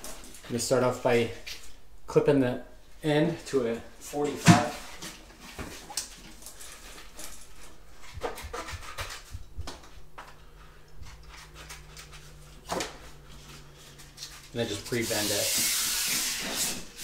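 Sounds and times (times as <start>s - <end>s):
tape rustling: 4.8s - 17.0s.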